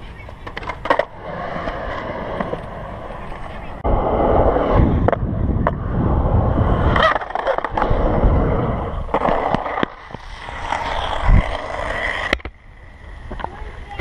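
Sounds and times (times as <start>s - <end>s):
skateboard clacks: 0.0s - 3.8s, 8.7s - 12.6s, 13.2s - 14.0s
skateboard wheels rolling on concrete: 0.0s - 14.0s.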